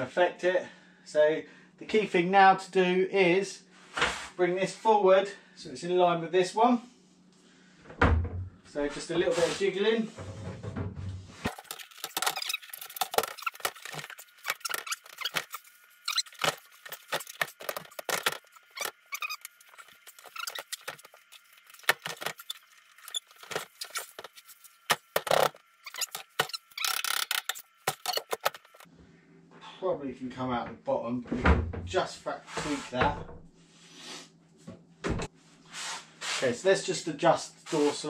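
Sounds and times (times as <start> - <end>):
freezer knocking and squeaking: 10.2 - 28.9.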